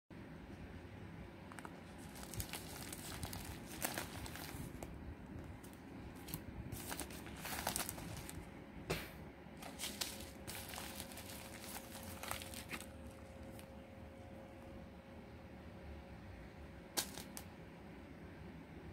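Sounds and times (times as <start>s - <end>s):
plastic packaging crinkling: 1.5s - 8.5s, 9.6s - 13.8s.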